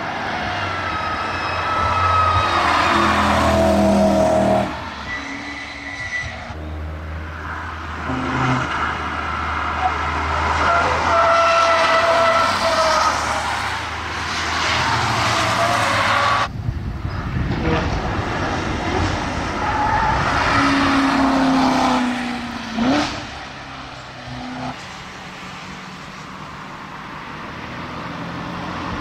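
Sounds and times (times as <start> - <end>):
van tyres squealing: 0.5 - 6.8, 7.4 - 16.5.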